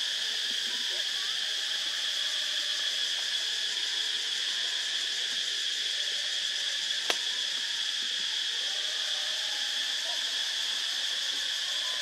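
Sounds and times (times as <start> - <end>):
insect chorus drone: 0.0 - 12.0
sharp click: 7.0 - 7.2.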